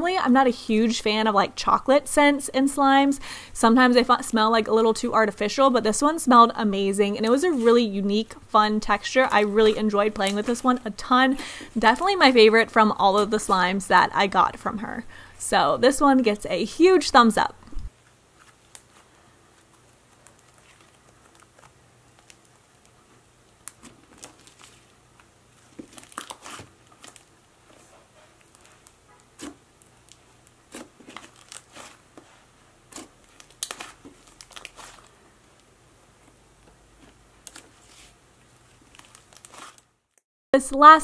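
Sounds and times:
slime crackling and popping: 19.6 - 27.4, 28.4 - 32.0, 32.9 - 35.1, 38.5 - 40.2.

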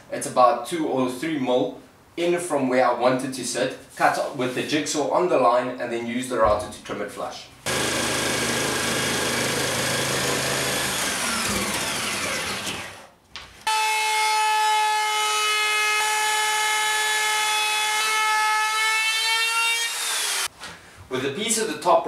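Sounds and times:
jigsaw cutting: 7.7 - 13.1, 15.9 - 20.5
router high whine: 7.7 - 13.1.

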